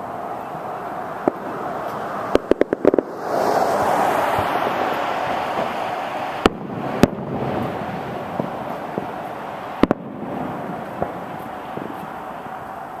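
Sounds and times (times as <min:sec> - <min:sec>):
distant fireworks bangs: 0:00.0 - 0:13.0
steady background hiss: 0:00.0 - 0:13.0.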